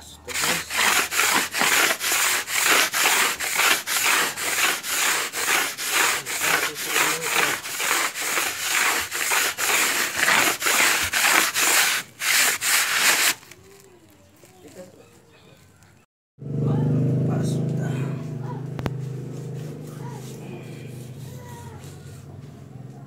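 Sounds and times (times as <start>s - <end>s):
floor polisher rubbing on floor: 0.3s - 13.5s, 18.9s - 22.8s.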